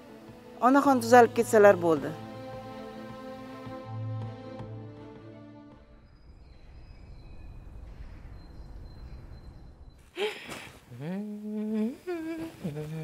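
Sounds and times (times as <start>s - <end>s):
background music: 0.0s - 6.3s
low rumble: 5.9s - 10.1s
woman humming: 10.2s - 13.0s.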